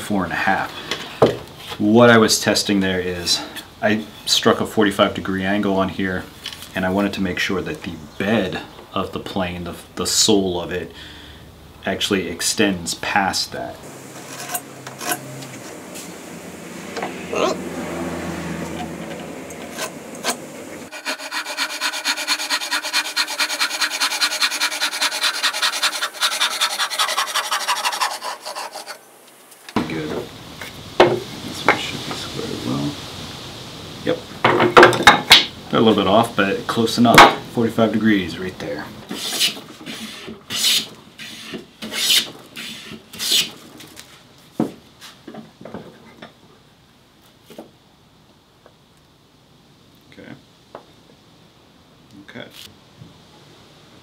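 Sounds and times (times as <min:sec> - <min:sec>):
hand saw cutting wood: 0:14.1 - 0:15.6, 0:19.6 - 0:29.0, 0:39.1 - 0:43.6.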